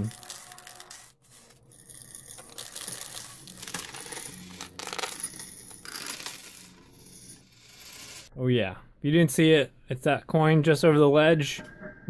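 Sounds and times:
coins clinking and sliding: 0.0s - 8.3s.

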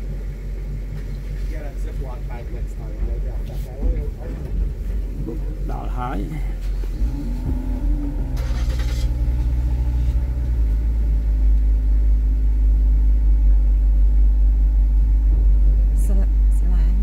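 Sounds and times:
car engine rumble: 0.0s - 17.0s
brief hiss: 8.4s - 9.2s.

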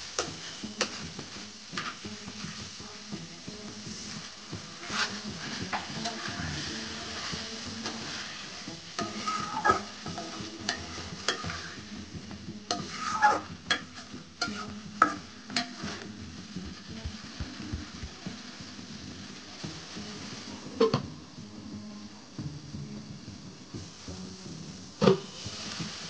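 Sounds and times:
curry sizzling: 0.0s - 26.0s
metal spatula scraping a pan: 0.2s - 3.1s, 3.8s - 16.0s.

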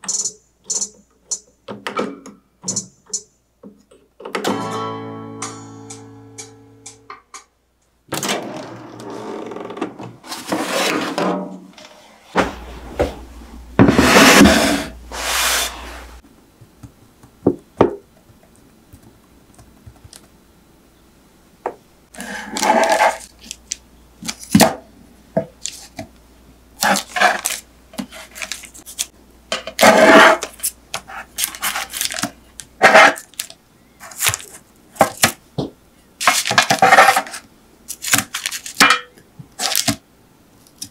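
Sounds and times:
tray and paper scraping: 10.2s - 13.2s, 13.8s - 16.1s, 22.2s - 23.3s, 26.8s - 29.1s, 29.8s - 33.4s, 36.2s - 37.4s.

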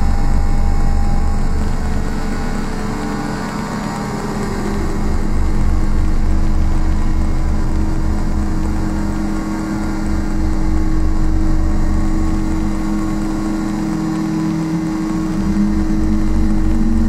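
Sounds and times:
low pulsing throb: 0.0s - 17.0s
low synth drone: 0.0s - 17.0s.

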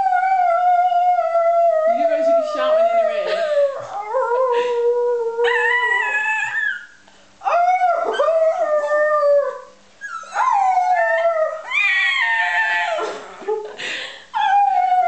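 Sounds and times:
dog howling: 5.3s - 6.9s, 7.5s - 13.3s.

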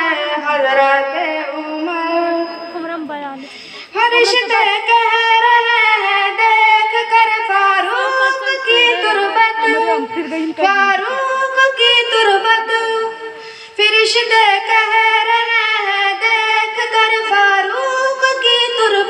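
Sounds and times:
high voice singing: 3.8s - 19.0s.

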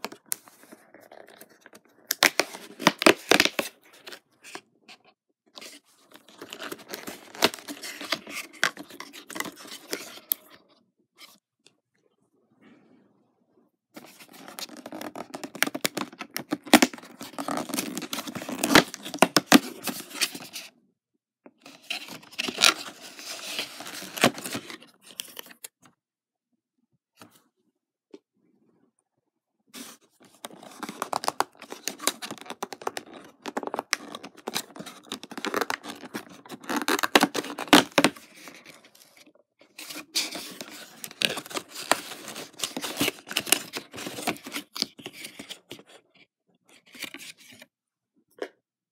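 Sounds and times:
cardboard tearing and scraping: 6.2s - 10.1s, 14.0s - 20.6s, 21.8s - 24.8s, 29.8s - 38.8s, 39.8s - 45.6s.

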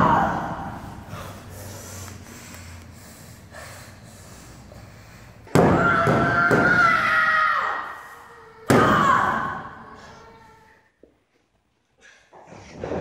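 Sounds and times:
woman screaming: 5.6s - 9.9s.

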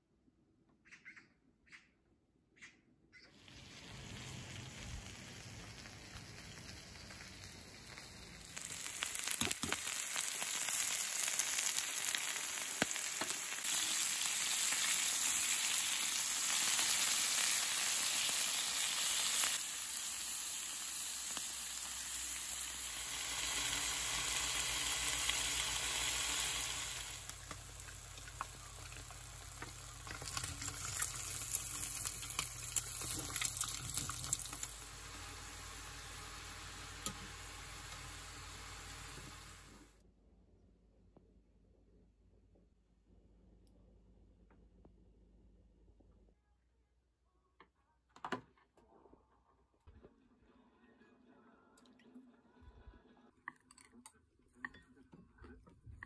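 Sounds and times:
fish sizzling in oil: 3.4s - 39.9s
eggs frying with crackling sizzle: 3.4s - 40.0s.

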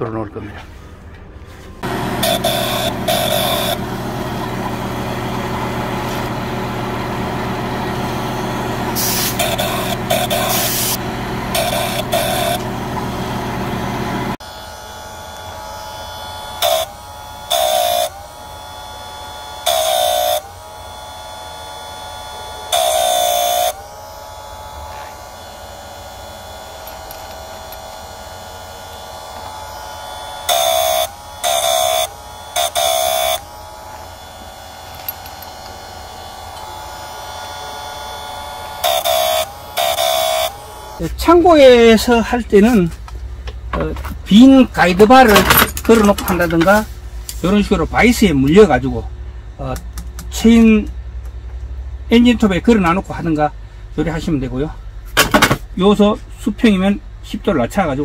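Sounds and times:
grinding wheel on chain teeth: 1.8s - 41.1s
grinder motor running: 1.8s - 42.9s.

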